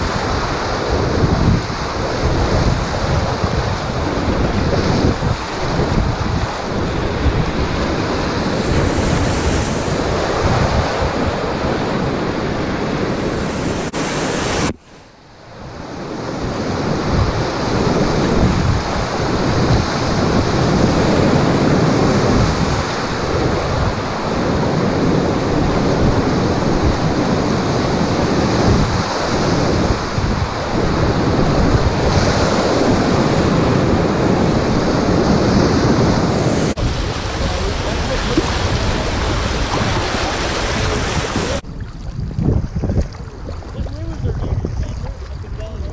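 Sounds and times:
whitewater rapids rushing: 0:16.8 - 0:41.6.

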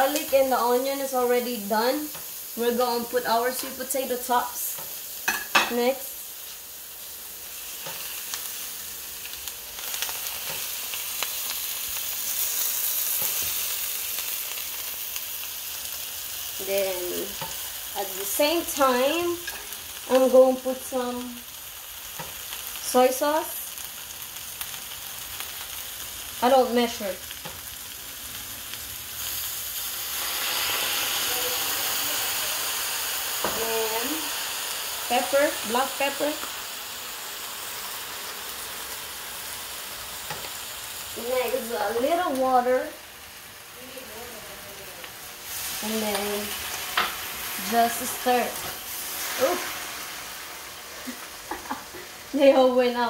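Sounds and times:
onion frying in butter sizzle: 0:00.0 - 0:53.0
sauce hitting hot pan: 0:04.8 - 0:05.8.

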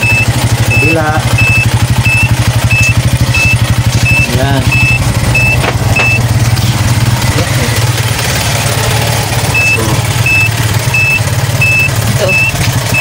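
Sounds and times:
turn signal beeps: 0:00.0 - 0:06.3, 0:09.5 - 0:13.0
motorcycle engine idling: 0:00.0 - 0:13.0.

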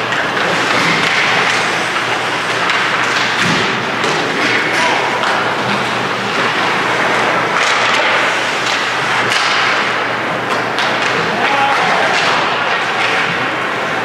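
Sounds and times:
hockey sticks and puck clacking: 0:00.0 - 0:14.0
skates scraping ice: 0:00.1 - 0:14.0.

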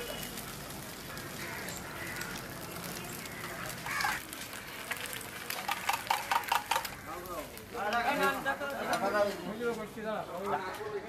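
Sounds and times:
eggs sizzling in oil: 0:00.0 - 0:10.6.

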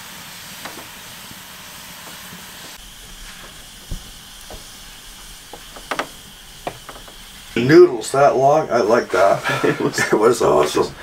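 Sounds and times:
wood fire hissing: 0:00.0 - 0:11.0
dull knock: 0:05.5 - 0:07.2.

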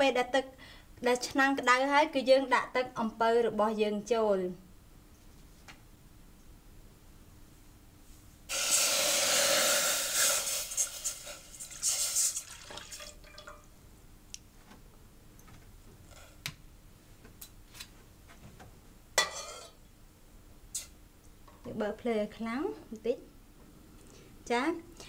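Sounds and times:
liquid pouring into metal pot: 0:10.2 - 0:13.7
trickle and drips: 0:11.6 - 0:13.7
metal ladle scraping pot: 0:19.2 - 0:19.8.

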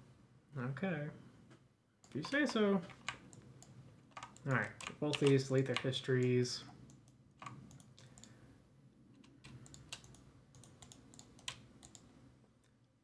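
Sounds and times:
keyboard keys clicking: 0:02.0 - 0:06.3, 0:09.2 - 0:12.1.

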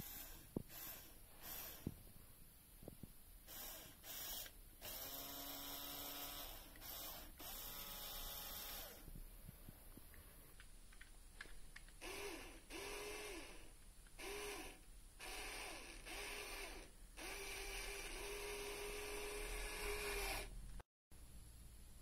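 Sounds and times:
electric motor and gears whirring: 0:00.0 - 0:02.0, 0:03.5 - 0:09.1, 0:12.0 - 0:20.8.

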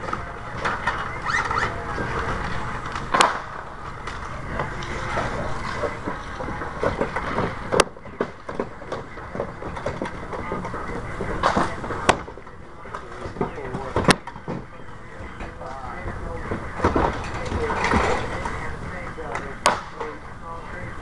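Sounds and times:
sharp cracks: 0:02.9 - 0:04.2.

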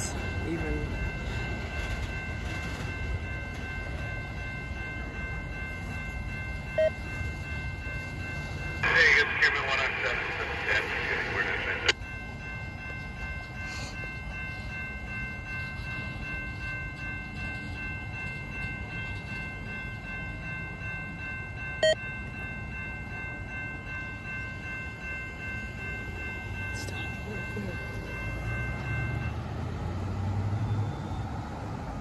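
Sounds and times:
freight train rumbling: 0:00.0 - 0:32.0
railroad crossing bell ringing: 0:00.0 - 0:32.0.

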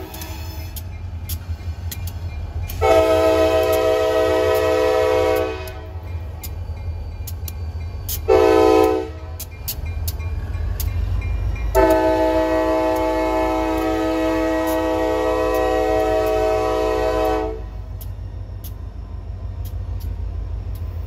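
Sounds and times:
locomotive air horn blasts: 0:02.7 - 0:06.0, 0:08.2 - 0:09.4, 0:11.7 - 0:17.8.

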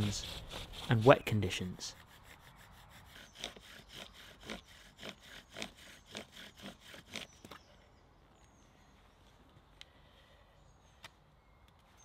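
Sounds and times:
bow drill spindle rubbing wood: 0:00.0 - 0:07.3.

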